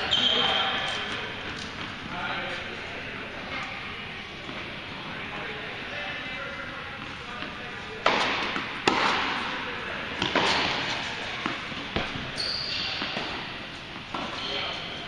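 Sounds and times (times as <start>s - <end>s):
rackets hitting tennis ball: 7.0s - 15.0s
ball bouncing on hard court: 10.2s - 13.4s.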